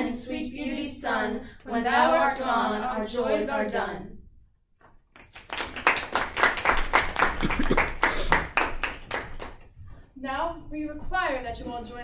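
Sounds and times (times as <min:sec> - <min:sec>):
small group clapping: 0:05.0 - 0:09.8.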